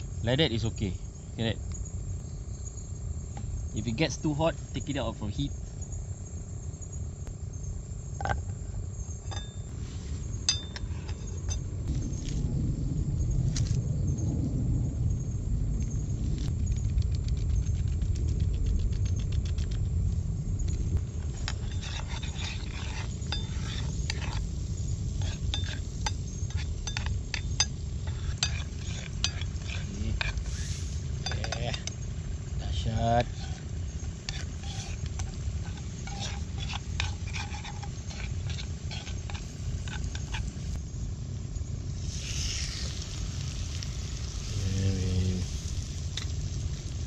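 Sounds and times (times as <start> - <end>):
low steady rumble: 0.0 - 47.0
sharp ringing clinks: 9.2 - 9.7, 10.4 - 11.7
butter sizzling: 20.8 - 40.8, 41.9 - 47.0
spoon scraping metal frying pan: 21.2 - 24.5, 25.1 - 32.0, 33.2 - 40.7.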